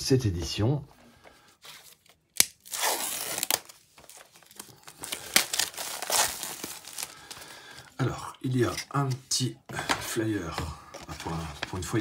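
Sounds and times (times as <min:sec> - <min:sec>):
crinkling plastic wrap: 0:01.9 - 0:07.9
plastic wrap snap: 0:02.3 - 0:07.3.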